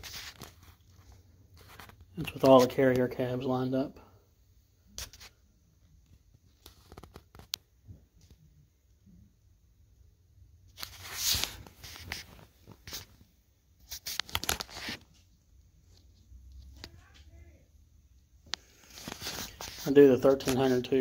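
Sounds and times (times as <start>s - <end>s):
brief rustle: 10.8s - 13.2s, 18.5s - 20.8s.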